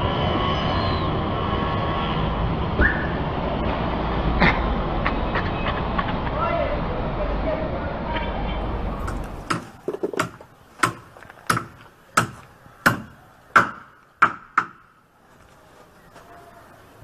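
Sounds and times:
sharp knocks: 9.0s - 14.9s.

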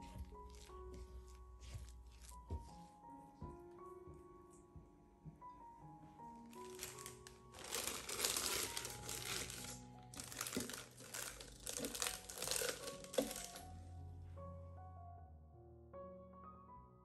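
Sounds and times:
soft piano music: 0.0s - 17.0s
plastic bag crinkling: 6.5s - 13.7s.

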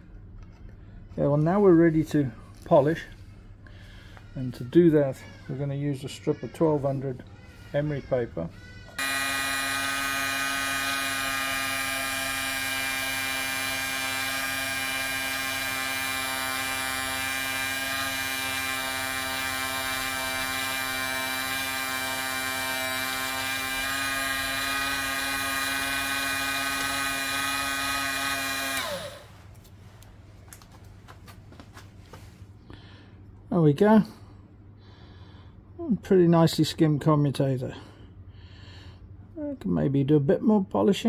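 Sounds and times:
electric motor whining: 8.9s - 29.5s
motor winding down: 9.0s - 29.4s.

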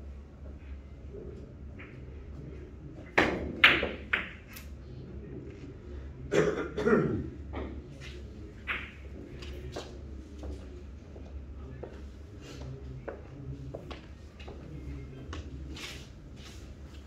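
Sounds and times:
cue striking ball: 3.2s - 4.4s.

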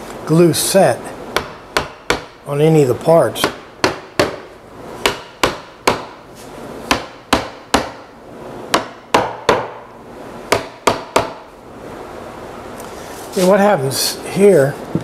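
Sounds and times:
sharp knocks on wood: 1.4s - 2.4s, 3.4s - 6.2s, 6.9s - 8.0s, 8.7s - 9.9s, 10.5s - 11.4s.

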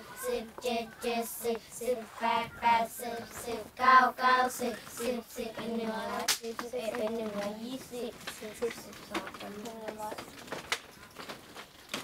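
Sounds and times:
children chanting in unison: 0.0s - 8.6s.

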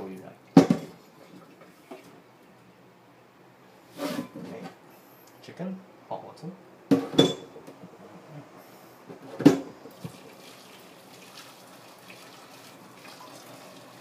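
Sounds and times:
water splashing into sink: 9.9s - 14.0s.

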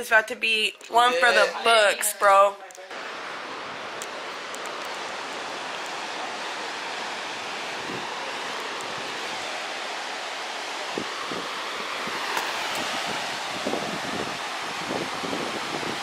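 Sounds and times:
steady rushing noise: 2.9s - 16.0s.

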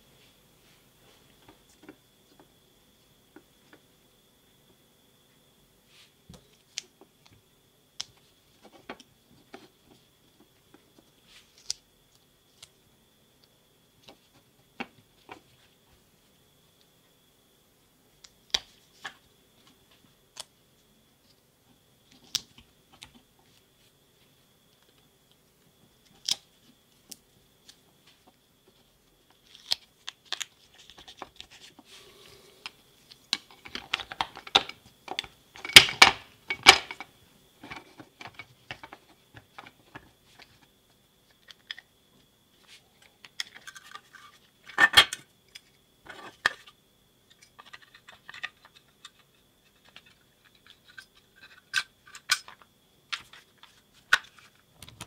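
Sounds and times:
faint steady high tone: 31.8s - 33.2s.

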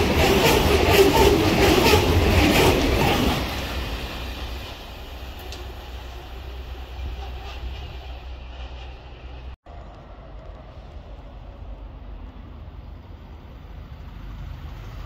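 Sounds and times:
freight train rumbling on rails: 0.0s - 15.0s.

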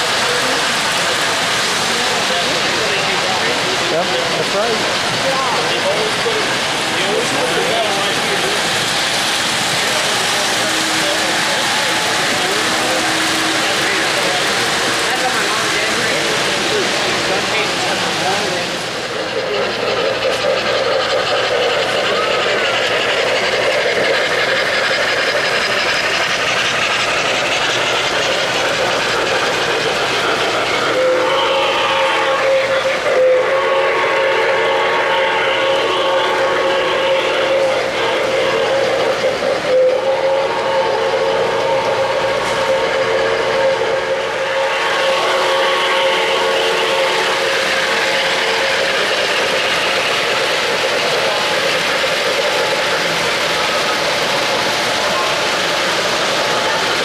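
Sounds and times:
model train wheels clattering on rails: 0.0s - 57.0s
steam whistle: 30.8s - 39.1s, 39.7s - 49.8s.

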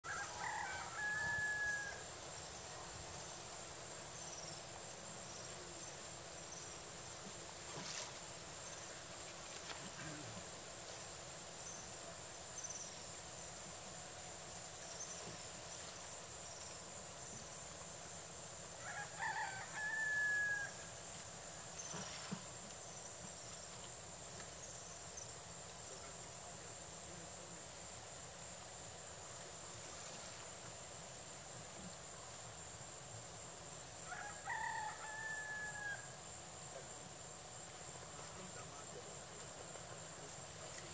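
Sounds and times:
rooster crowing: 0.0s - 2.1s, 18.8s - 20.9s, 34.1s - 36.2s
steady outdoor hiss: 0.0s - 40.9s.

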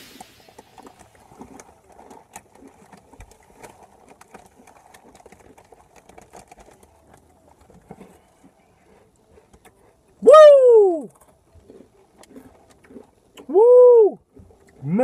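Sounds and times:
faint crunching of chips: 11.1s - 13.5s.

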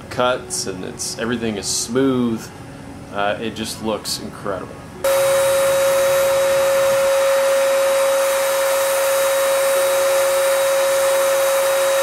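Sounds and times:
paint sprayer air rush and whine: 5.0s - 12.0s.

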